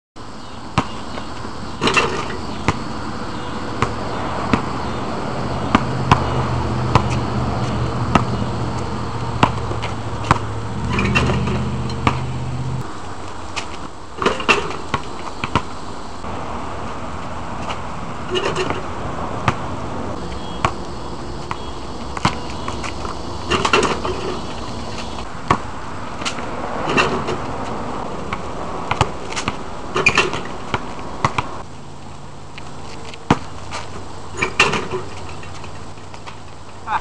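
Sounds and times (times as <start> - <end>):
basketball bouncing on asphalt: 0.4 - 36.8
rim and backboard rattling: 1.8 - 2.8, 9.4 - 12.3, 14.2 - 15.7, 18.2 - 19.6, 21.5 - 25.6, 26.2 - 27.5, 28.9 - 31.4, 34.4 - 35.8.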